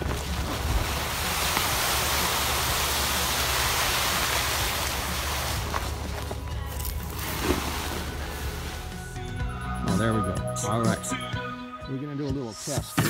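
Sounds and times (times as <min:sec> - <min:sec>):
leaf blower blasting air: 0:00.0 - 0:06.3.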